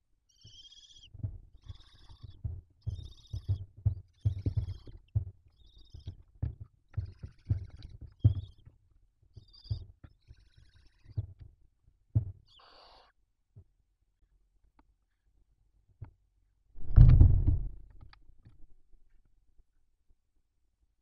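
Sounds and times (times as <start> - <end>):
owls hissing calls: 12.5 - 13.1
thumps against wooden box: 16.8 - 17.8.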